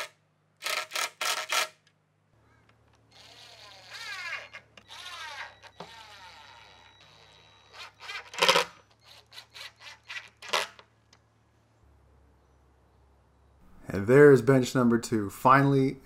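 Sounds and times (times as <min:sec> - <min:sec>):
cordless drill driving screws: 0:03.1 - 0:10.4.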